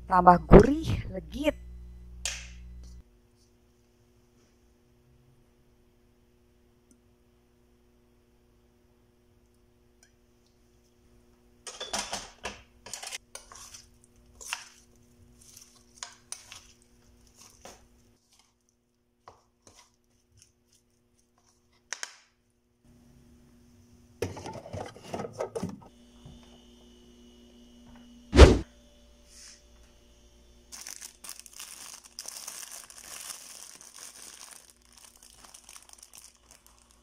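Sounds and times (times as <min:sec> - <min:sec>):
spatula scraping a bowl: 0:12.9 - 0:14.7
loud thump: 0:28.4 - 0:28.7.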